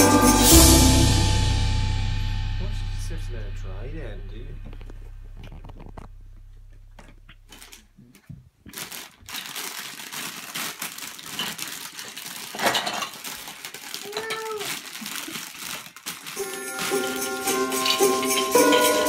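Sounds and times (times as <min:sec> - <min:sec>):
low hum: 0:00.0 - 0:08.0
plastic packaging crinkling: 0:04.6 - 0:18.3.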